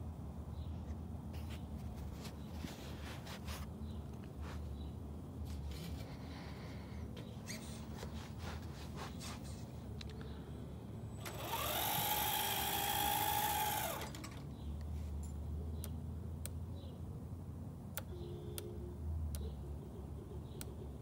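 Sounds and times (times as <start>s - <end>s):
electric motor whining: 11.2s - 14.3s.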